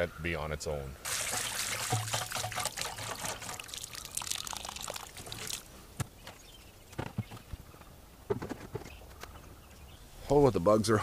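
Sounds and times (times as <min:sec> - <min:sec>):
water splashing from watering can: 0:01.0 - 0:05.7.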